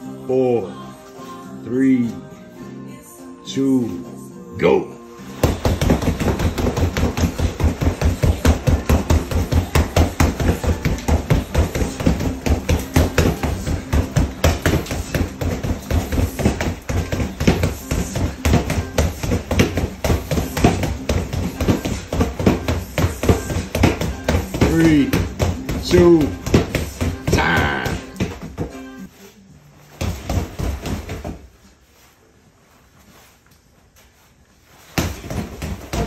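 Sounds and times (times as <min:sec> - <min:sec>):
gloves pounding punching bag: 0:05.3 - 0:29.1, 0:29.9 - 0:31.5, 0:34.9 - 0:36.0.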